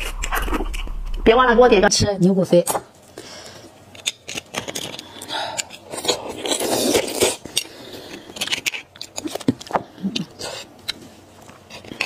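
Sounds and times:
utensil scraping bone: 0:03.9 - 0:11.0.

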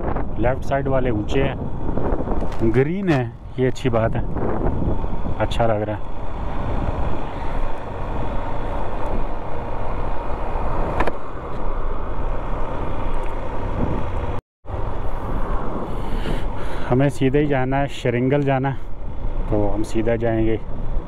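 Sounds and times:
road noise: 0:00.0 - 0:21.0
motorcycle engine: 0:04.2 - 0:16.8.

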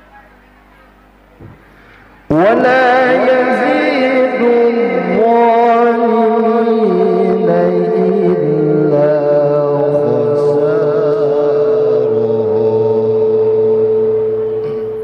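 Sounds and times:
man reciting melodically: 0:02.3 - 0:14.2.

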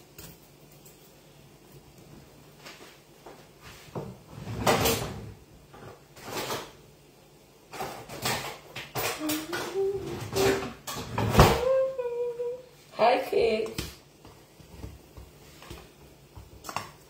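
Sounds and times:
kitchen clattering and scraping: 0:03.7 - 0:06.8, 0:07.6 - 0:11.7.

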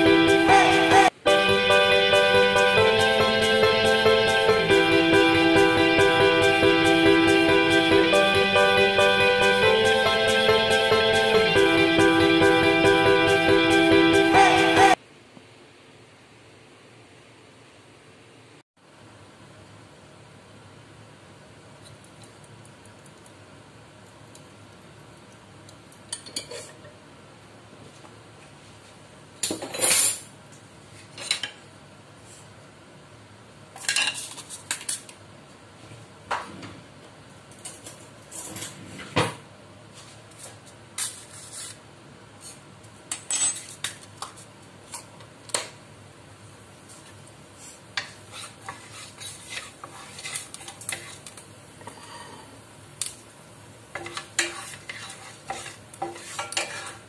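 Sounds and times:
utensils clinking against a pot: 0:54.0 - 0:57.0.

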